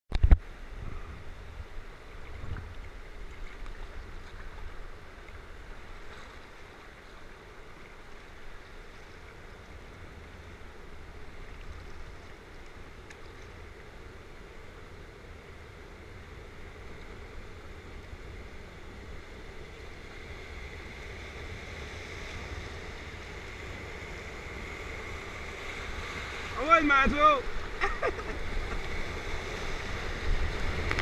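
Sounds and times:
fast-flowing river water: 20.7s - 31.0s.

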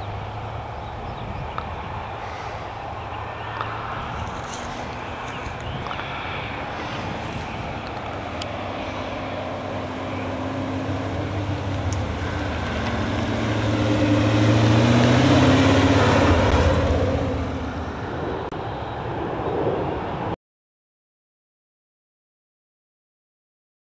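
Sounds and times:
car engine driving past: 2.0s - 18.5s.

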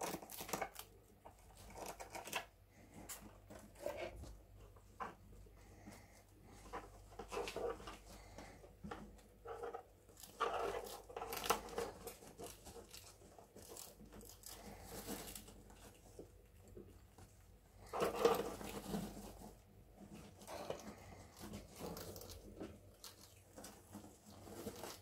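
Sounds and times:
rats gnawing wood: 0.0s - 25.0s
scrabbling in wood shavings: 17.8s - 25.0s.

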